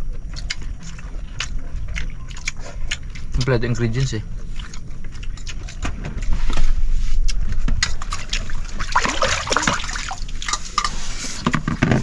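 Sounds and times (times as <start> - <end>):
liquid pouring and splashing: 8.1 - 10.9.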